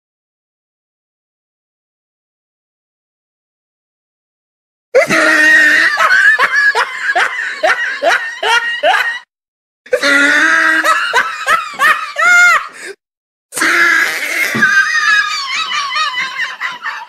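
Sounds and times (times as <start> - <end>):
repeated laughter: 5.0 - 9.3, 9.9 - 13.0, 13.6 - 17.0.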